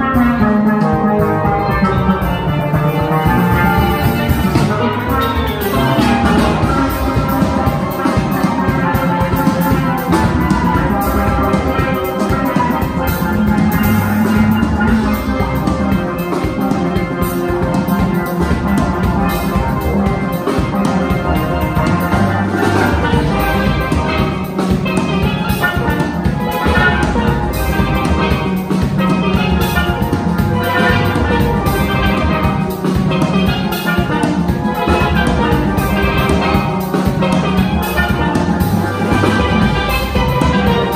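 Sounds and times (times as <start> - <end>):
drum kit steady beat: 0.0 - 40.9
steel pans playing fast runs: 0.0 - 40.9.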